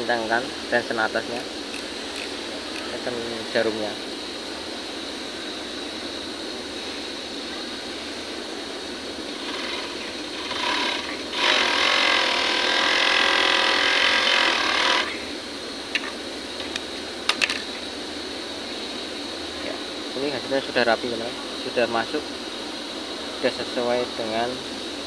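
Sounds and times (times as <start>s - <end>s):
overlock sewing machine stitching: 9.4s - 15.1s.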